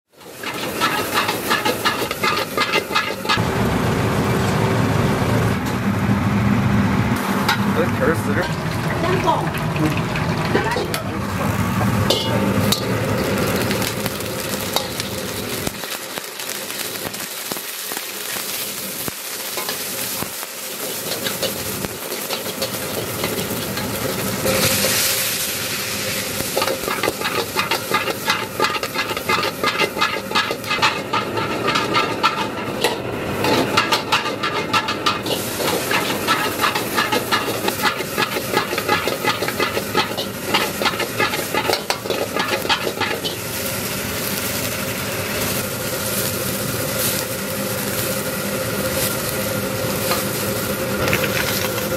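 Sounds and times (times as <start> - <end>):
metal ladle scraping a wok: 0.1 - 3.4, 10.4 - 13.9, 20.8 - 44.6
food sizzling in oil: 0.1 - 51.9.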